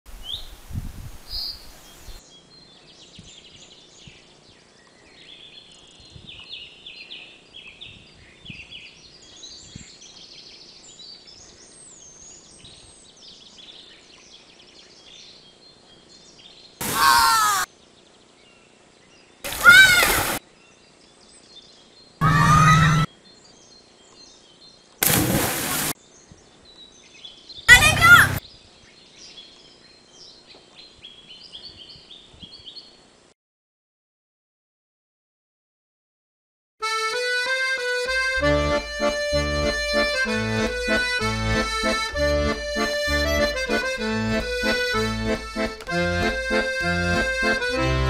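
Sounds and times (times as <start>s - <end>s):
small birds chirping: 1.2s - 33.2s
loud animal calls: 22.2s - 23.1s.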